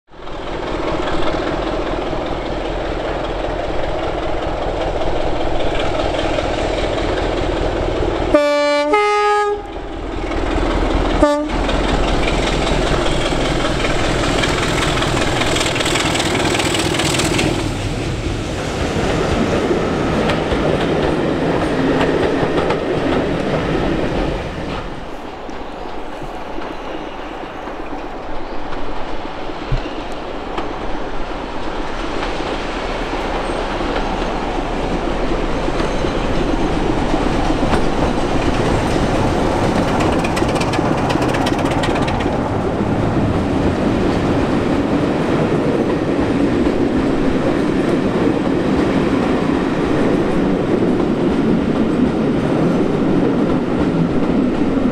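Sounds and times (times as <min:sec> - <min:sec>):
diesel train approaching: 0:00.1 - 0:54.9
diesel locomotive engine running: 0:01.6 - 0:18.4, 0:32.9 - 0:45.8
short low horn blast: 0:08.3 - 0:09.8, 0:11.2 - 0:11.6
two-tone train horn: 0:08.3 - 0:09.9, 0:11.1 - 0:11.7.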